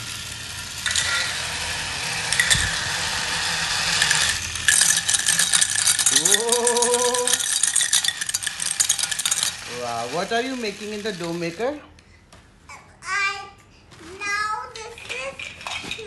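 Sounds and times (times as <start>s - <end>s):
plastic gears clicking rattle: 0.0s - 11.5s, 14.8s - 16.0s
toy mixer motor whirring: 0.0s - 11.8s, 14.8s - 16.0s.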